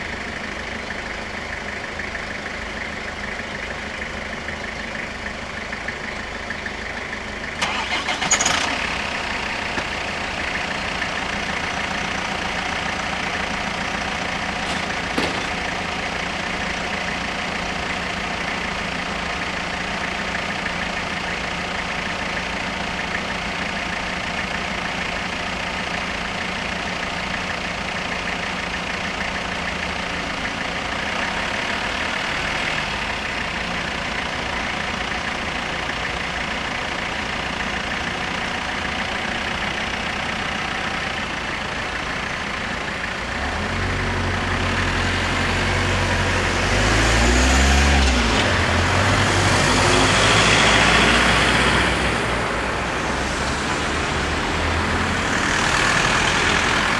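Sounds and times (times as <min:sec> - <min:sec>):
cars idling: 0:00.0 - 0:56.9
car engines revving past: 0:43.4 - 0:56.9.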